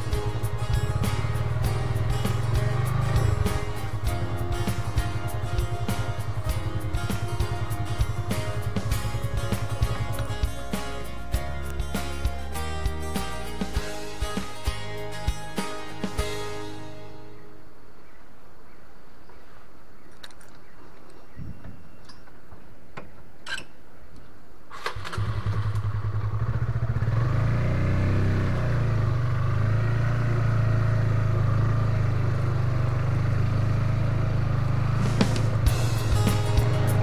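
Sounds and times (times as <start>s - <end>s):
motorcycle engine running: 0.0s - 16.6s, 25.1s - 37.0s.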